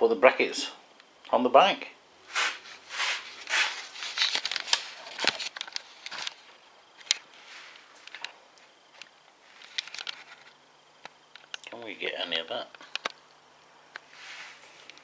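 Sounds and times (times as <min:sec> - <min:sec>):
rustling swishes: 0:02.3 - 0:04.2.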